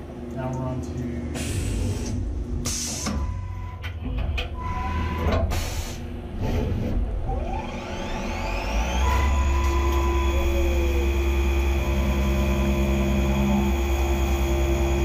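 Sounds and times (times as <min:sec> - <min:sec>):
milling machine rumbling: 0:00.0 - 0:15.0
spindle whine rising in pitch: 0:07.2 - 0:15.0.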